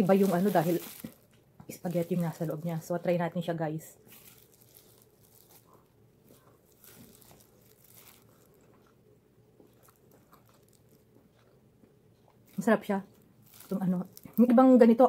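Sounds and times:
person chewing sandwich: 4.2s - 12.6s.

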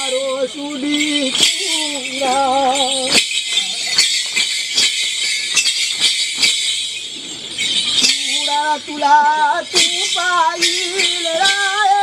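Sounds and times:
person singing a wavering note: 0.0s - 3.8s, 8.0s - 12.0s
high jangle of bells: 0.0s - 12.0s
metallic jingling strikes: 0.0s - 12.0s.

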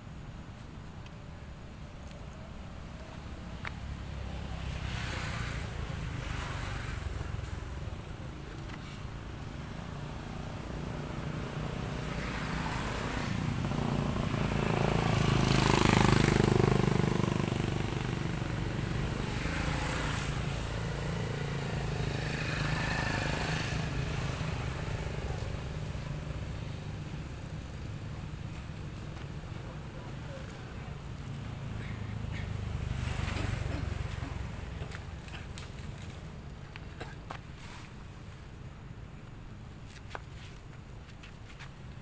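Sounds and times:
vehicle engine passing by: 10.3s - 36.1s.

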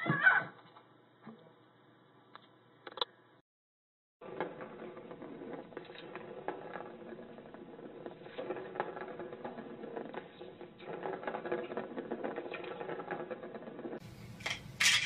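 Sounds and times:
ball clicking against track: 4.2s - 14.8s
ball rattling around plastic track: 4.2s - 15.0s.

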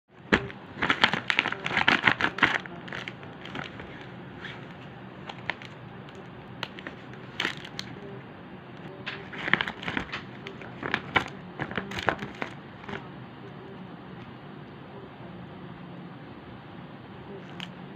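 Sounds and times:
plastic pouch crinkling: 0.3s - 8.0s, 9.1s - 13.0s.

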